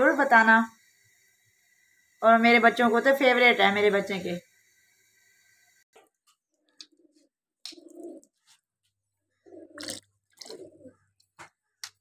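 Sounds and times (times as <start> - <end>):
dove cooing: 6.9 - 8.4, 9.4 - 11.1.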